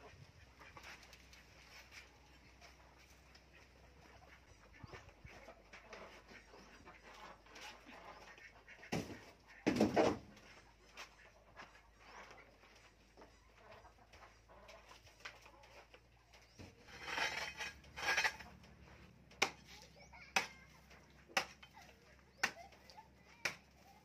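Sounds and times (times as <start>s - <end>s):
hoe striking hard dirt: 16.8s - 18.5s, 19.4s - 19.7s.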